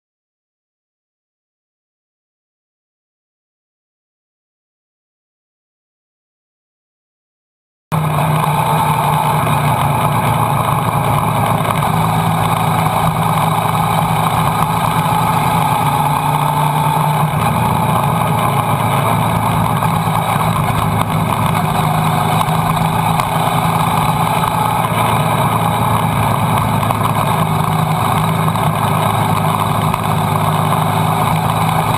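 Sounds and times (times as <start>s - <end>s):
motorcycle engine running: 7.9s - 31.9s.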